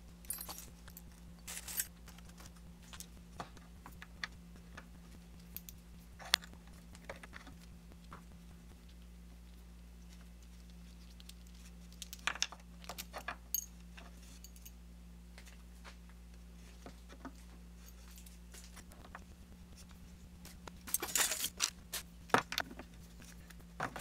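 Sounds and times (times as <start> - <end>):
steady low hum: 0.0 - 24.0
metal tools clinking on workbench: 20.9 - 21.7.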